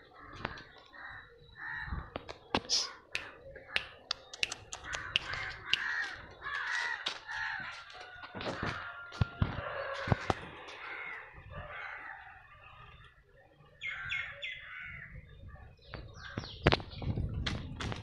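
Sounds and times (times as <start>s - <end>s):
crows cawing: 0.1s - 2.2s, 4.8s - 12.6s
sharp clicks: 2.2s - 6.2s.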